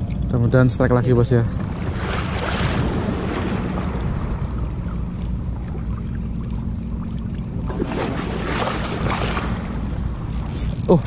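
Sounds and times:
wind rumble on microphone: 0:00.0 - 0:11.0
choppy sea water: 0:00.9 - 0:11.0
faint sharp ticks: 0:06.4 - 0:07.3.

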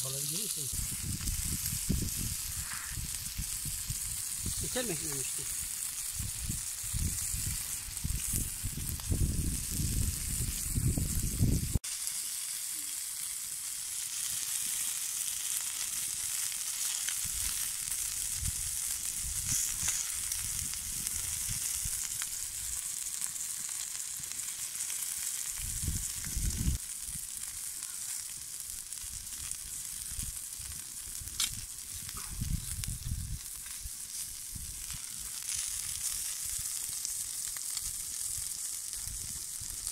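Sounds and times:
meat sizzling on hot stone: 0:00.0 - 0:39.9.

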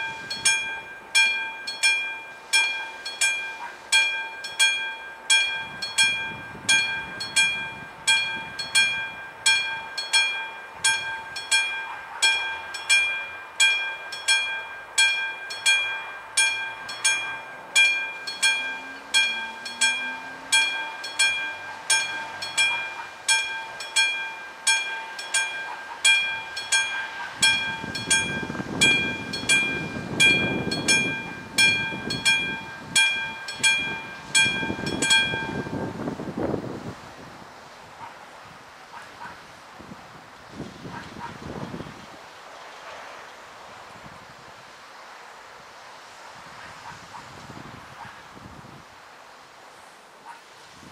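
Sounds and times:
level crossing warning bell: 0:00.0 - 0:36.6.

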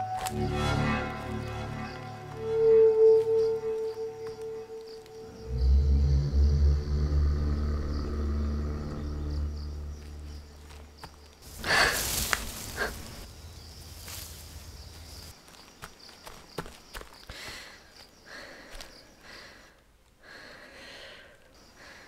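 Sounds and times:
low horror score drone: 0:00.0 - 0:10.8.

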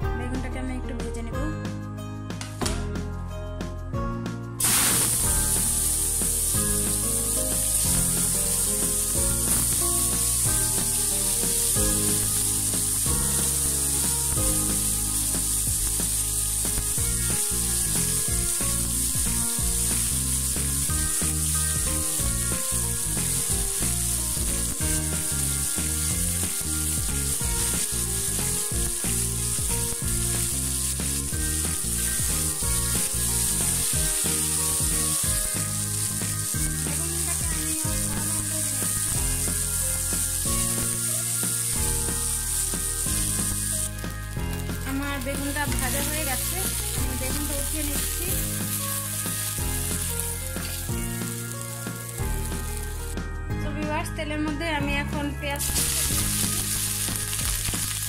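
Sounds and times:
background music: 0:00.0 - 0:58.0
spatula stirring in wok: 0:04.6 - 0:53.0
vegetables sizzling in hot oil: 0:04.6 - 0:53.2, 0:55.6 - 0:58.0.

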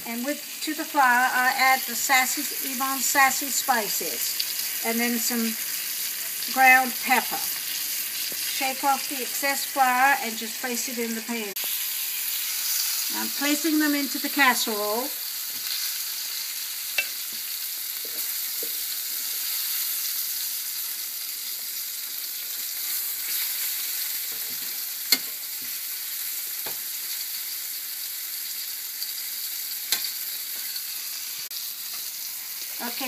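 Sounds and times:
chicken sizzling in hot oil: 0:00.0 - 0:33.0
metal tongs clicking on pan: 0:17.0 - 0:17.2, 0:25.1 - 0:25.4, 0:29.9 - 0:30.8.

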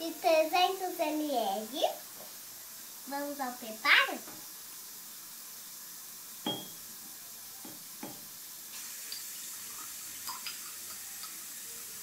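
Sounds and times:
ceramic clink: 0:06.5 - 0:06.8
milk pouring into a mug: 0:08.7 - 0:12.0.

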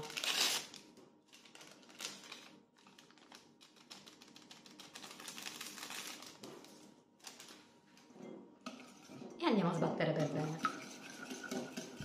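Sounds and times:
paper sachet tearing and crinkling: 0:00.0 - 0:07.6.

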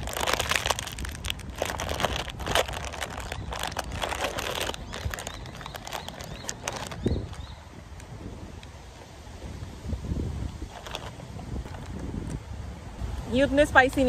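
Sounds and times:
foil snack packet crinkling: 0:00.0 - 0:07.4, 0:10.6 - 0:11.8.

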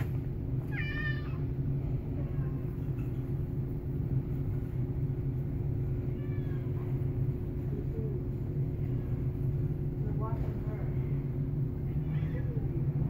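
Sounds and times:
machinery hum and rumble: 0:00.0 - 0:13.0
cat meowing: 0:00.6 - 0:01.5, 0:06.0 - 0:07.0, 0:12.0 - 0:12.7.

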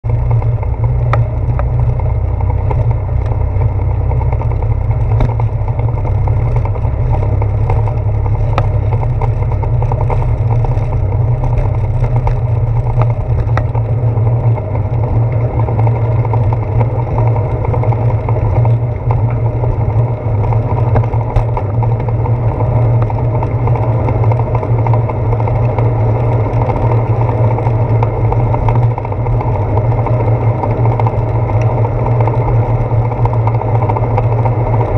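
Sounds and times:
bicycle wind and road rumble: 0:00.0 - 0:34.9
small clicks and knocks: 0:00.1 - 0:19.8.

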